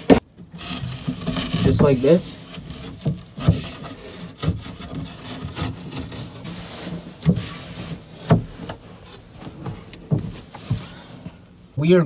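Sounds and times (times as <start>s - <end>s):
rubbing and rustling: 0.0s - 11.7s
knocks: 9.6s - 10.9s.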